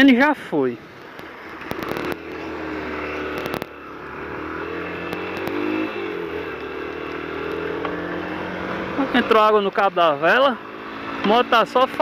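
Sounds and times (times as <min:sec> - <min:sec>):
motorcycle engine accelerating: 0:00.8 - 0:12.0
sharp clicks: 0:00.9 - 0:02.4, 0:03.3 - 0:03.8, 0:05.0 - 0:05.7.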